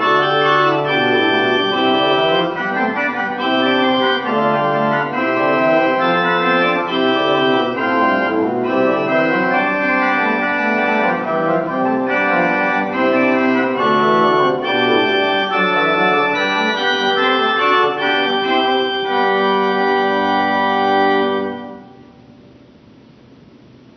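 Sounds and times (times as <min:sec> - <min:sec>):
pipe organ playing sustained chords: 0:00.0 - 0:22.3.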